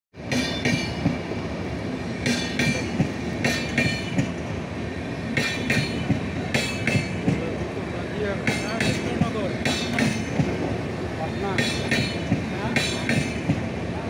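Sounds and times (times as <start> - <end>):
train rumbling past: 0.2 - 14.0
wheels clacking over rail joint: 2.2 - 4.5, 5.3 - 13.8.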